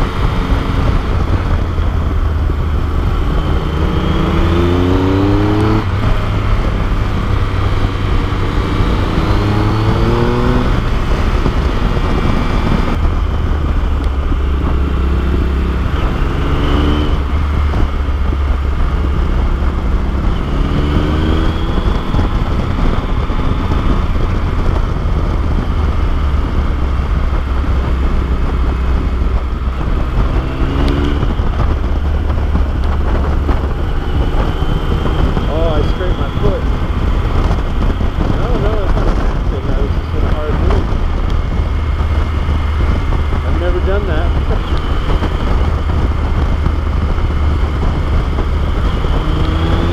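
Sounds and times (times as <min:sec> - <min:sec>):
motorcycle engine accelerating: 0:00.0 - 0:49.9
wind noise rushing: 0:00.0 - 0:49.9.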